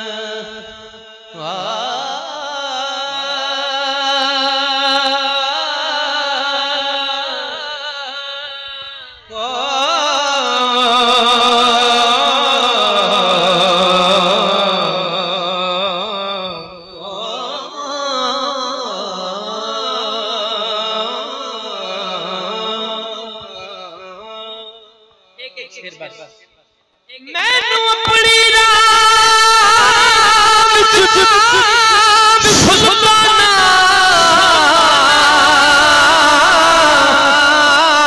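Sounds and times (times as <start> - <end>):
man chanting through loudspeakers: 0.0 - 26.5, 27.1 - 38.0.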